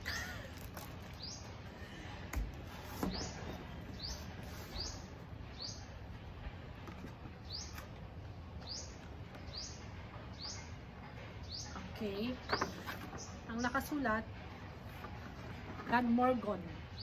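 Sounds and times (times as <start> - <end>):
small bird chirping: 1.0 - 1.6, 3.1 - 5.9.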